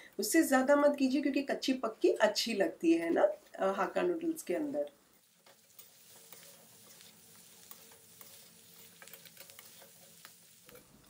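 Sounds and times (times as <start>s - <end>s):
faint stir-fry sizzle: 5.2s - 11.0s
metal spatula scraping pan: 5.2s - 11.0s.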